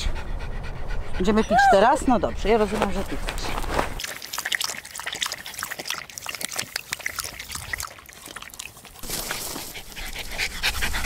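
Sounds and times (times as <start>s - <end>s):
dog lapping water: 3.6s - 11.0s.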